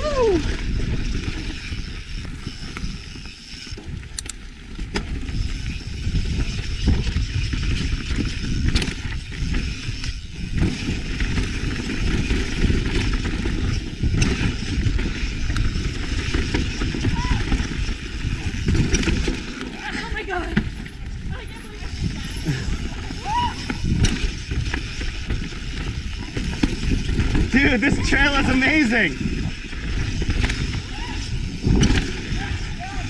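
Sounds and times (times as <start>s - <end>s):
mountain bike rumbling on rough trail: 0.0s - 33.0s
bike knocks and rattles: 0.5s - 28.1s, 29.2s - 33.0s.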